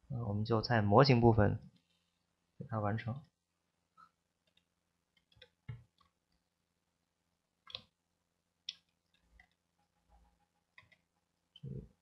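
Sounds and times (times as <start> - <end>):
mouse and keyboard clicks: 7.6 - 7.9.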